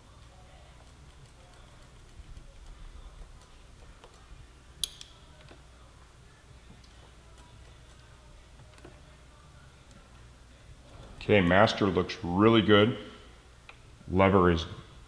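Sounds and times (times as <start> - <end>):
small clicks of hand work: 4.8 - 5.6.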